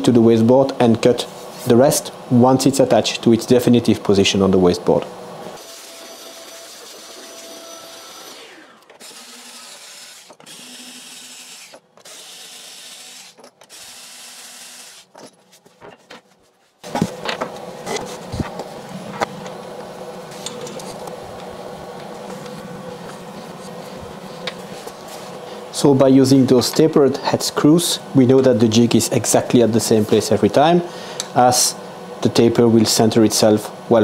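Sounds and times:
cordless screwdriver running: 5.6 - 15.1.

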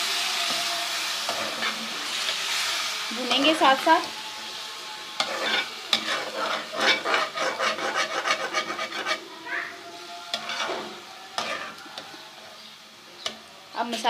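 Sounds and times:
liver frying in a pan: 0.0 - 14.0
spoon scraping a pan: 0.5 - 3.5, 5.2 - 9.3, 10.3 - 12.3.

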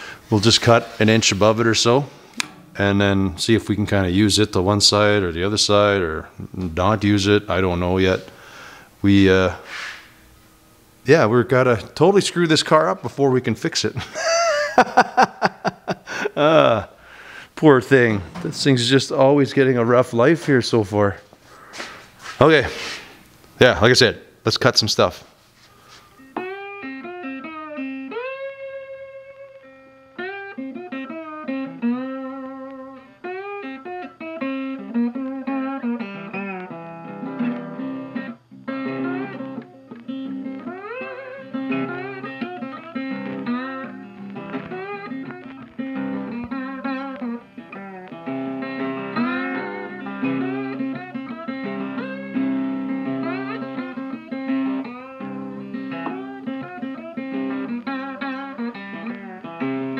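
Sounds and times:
blues guitar with slides: 0.0 - 10.2, 25.7 - 59.9.

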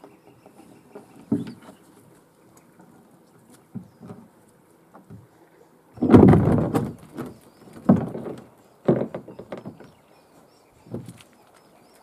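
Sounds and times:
kayak hull knocking and scraping: 0.0 - 2.0, 3.6 - 5.3, 6.0 - 10.0, 10.9 - 11.3.

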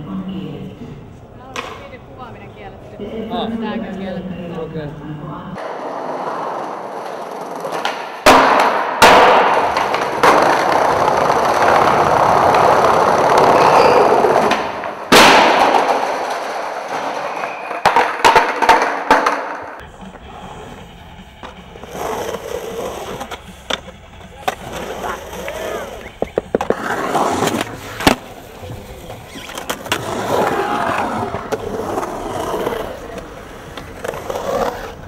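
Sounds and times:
skateboard slamming on tiles: 5.6 - 19.8
skateboard popping: 5.6 - 20.2, 21.4 - 35.0
skateboard clacks: 5.6 - 35.0
skateboard wheels rolling on tiles: 5.6 - 35.0.

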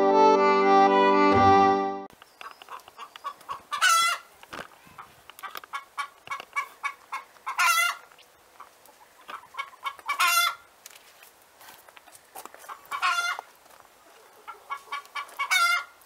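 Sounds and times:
hen clucking: 2.3 - 10.7, 12.6 - 16.0.

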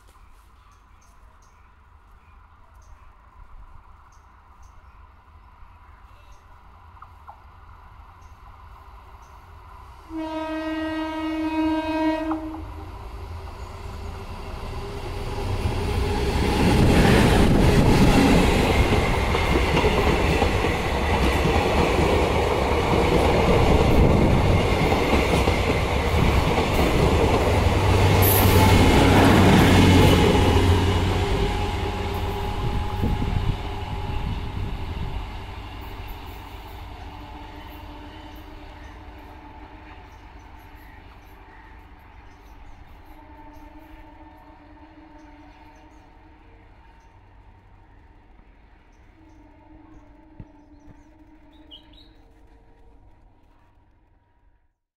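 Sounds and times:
train horn: 10.0 - 12.9, 27.9 - 35.2, 37.0 - 40.2, 42.9 - 47.0, 49.0 - 52.4
train wheels clattering on rails: 14.8 - 33.8.

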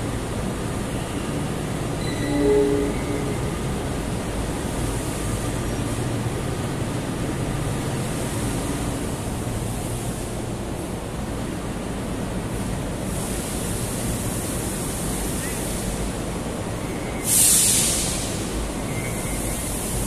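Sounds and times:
diesel locomotive idling: 0.0 - 20.0
short horn tone: 2.0 - 4.1.

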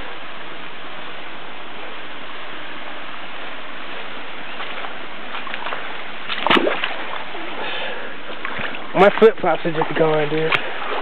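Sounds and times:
stream water rushing: 3.2 - 11.0.

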